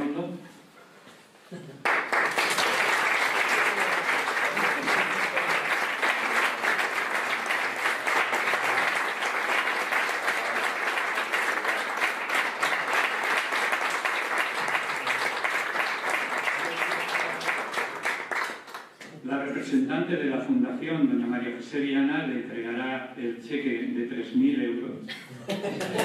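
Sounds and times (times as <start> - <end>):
audience applauding: 1.8 - 19.0.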